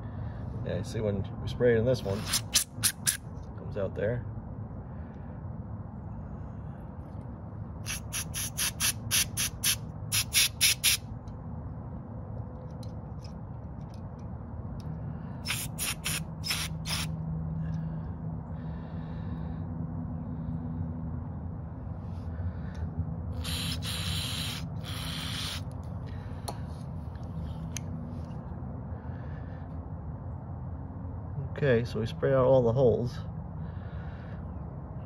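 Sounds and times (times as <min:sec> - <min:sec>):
steady low hum: 0:00.0 - 0:35.0
aerosol spray hissing puffs: 0:02.0 - 0:03.2, 0:07.9 - 0:11.0, 0:15.4 - 0:17.1, 0:23.4 - 0:25.6.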